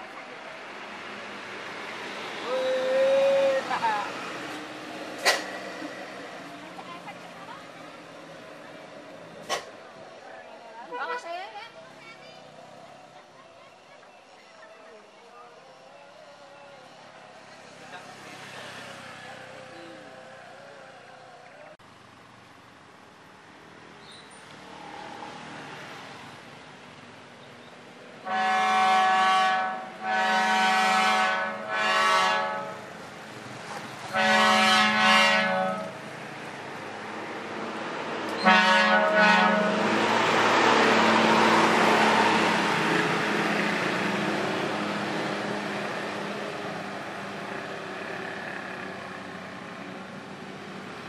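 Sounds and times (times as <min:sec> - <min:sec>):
bus passing by: 0:00.0 - 0:51.0
bus horn blasts: 0:28.2 - 0:32.9, 0:34.1 - 0:36.0, 0:38.4 - 0:39.9.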